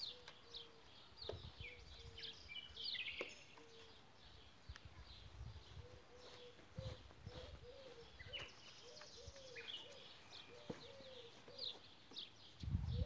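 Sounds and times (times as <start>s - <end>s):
small birds chirping: 0.0s - 13.0s
short low bird calls: 5.7s - 11.9s.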